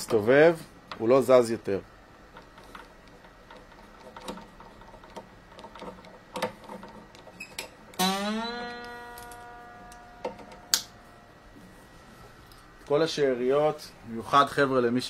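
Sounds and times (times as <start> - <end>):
guitar tuning machine clicks: 2.3 - 11.0
guitar string ringing rising pitch: 8.0 - 11.3.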